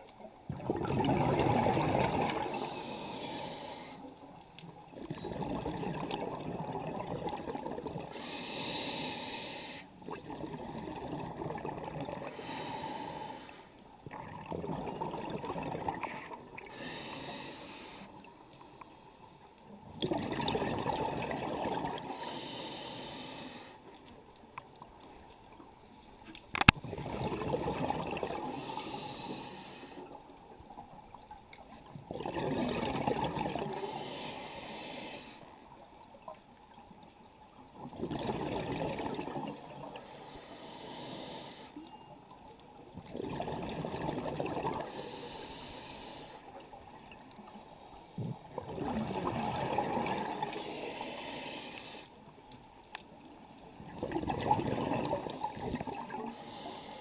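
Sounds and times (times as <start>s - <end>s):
exhaled bubbles underwater: 0.0s - 3.5s, 4.7s - 8.3s, 10.0s - 12.8s, 14.0s - 17.4s, 19.8s - 22.4s, 26.8s - 29.5s, 30.8s - 34.3s, 37.6s - 40.1s, 42.8s - 45.2s, 46.6s - 51.2s, 53.6s - 56.7s
regulator inhalations: 2.5s - 4.1s, 8.1s - 9.9s, 12.3s - 13.7s, 16.6s - 18.3s, 22.1s - 23.8s, 28.5s - 30.1s, 33.8s - 35.5s, 40.0s - 41.8s, 44.9s - 46.5s, 50.4s - 52.2s, 56.2s - 57.0s.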